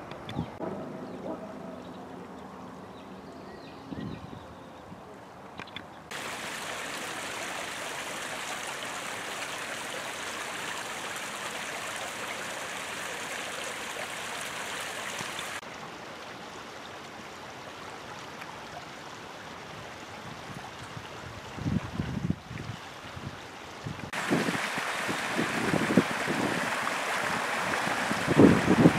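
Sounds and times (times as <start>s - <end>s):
creek running over stones: 6.1s - 28.9s.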